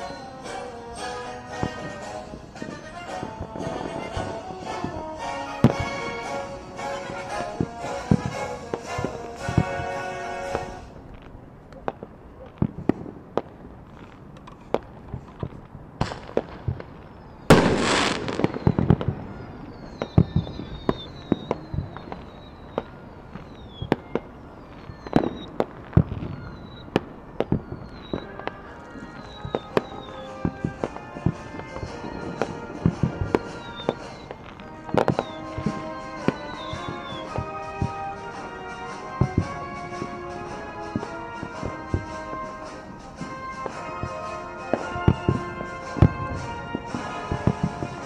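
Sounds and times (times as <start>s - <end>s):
music: 0.0s - 11.0s, 27.4s - 48.0s
fireworks bursting bangs: 0.0s - 48.0s
fireworks crackling: 0.0s - 48.0s
fireworks falling whistles: 0.0s - 48.0s.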